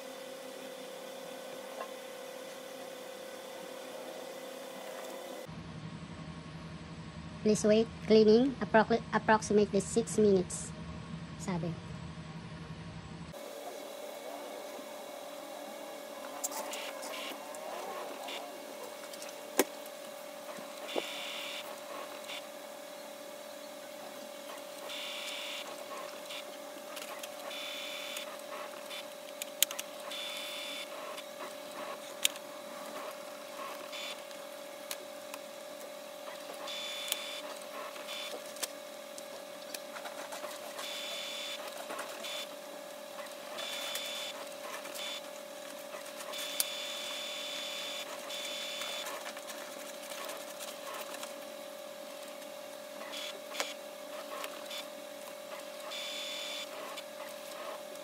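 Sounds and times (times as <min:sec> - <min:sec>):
printer humming: 0:00.0 - 0:05.6, 0:13.3 - 0:58.0
printer mechanism whirring: 0:13.3 - 0:58.0.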